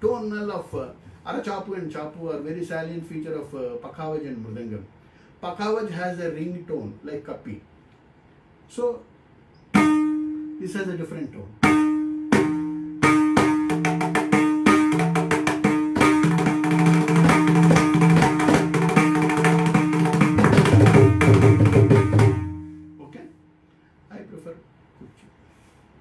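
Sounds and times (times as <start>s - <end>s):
drum ringing rhythmic strokes: 11.6s - 23.0s.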